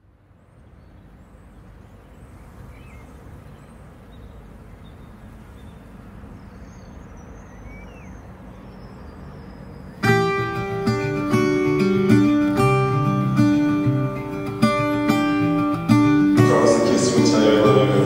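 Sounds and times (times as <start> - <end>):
faint bird chirps: 0.0 - 10.4
low rush of noise: 0.0 - 18.0.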